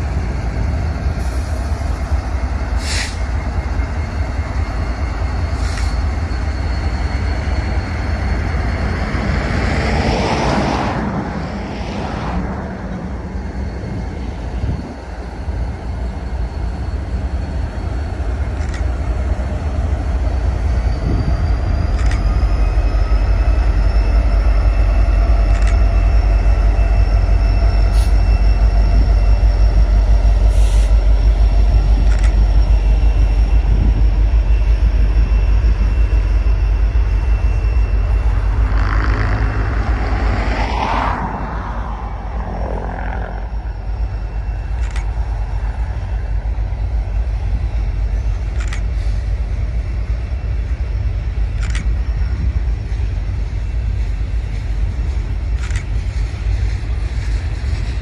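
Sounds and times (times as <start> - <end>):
diesel locomotive engine rumble: 0.0 - 58.0
rush of noise: 0.0 - 58.0
train wheel squeal: 0.0 - 58.0
freight cars rolling past: 37.2 - 47.0.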